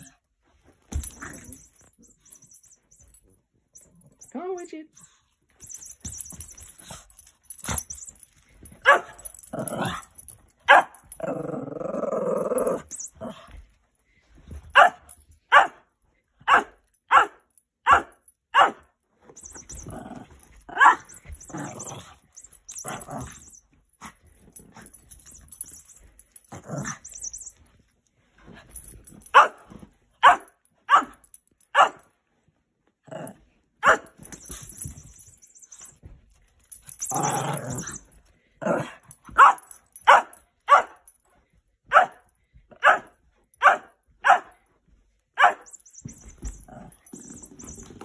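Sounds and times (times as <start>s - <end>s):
small dog barking: 8.8s - 9.2s, 14.8s - 15.8s, 16.5s - 18.8s, 30.2s - 31.2s, 31.8s - 32.0s, 41.9s - 42.2s, 42.8s - 44.5s, 45.4s - 45.7s
dog growling: 11.2s - 12.8s.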